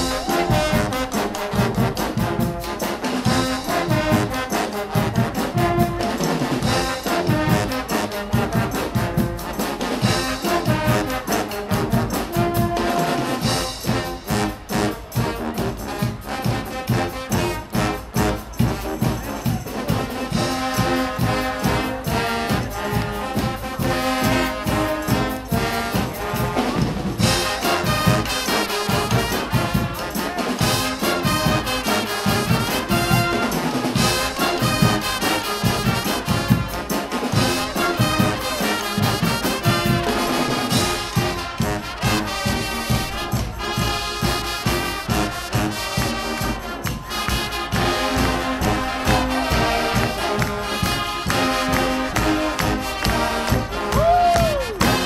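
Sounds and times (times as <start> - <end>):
brass band playing: 0.0 - 55.0
marching drums: 0.0 - 55.0.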